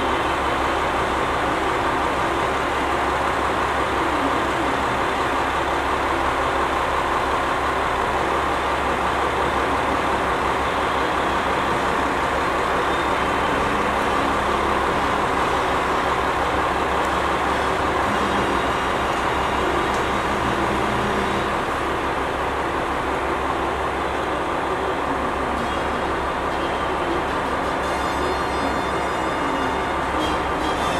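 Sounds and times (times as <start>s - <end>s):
diesel engine hum: 0.0s - 30.9s
train wheels on rails: 0.0s - 30.9s.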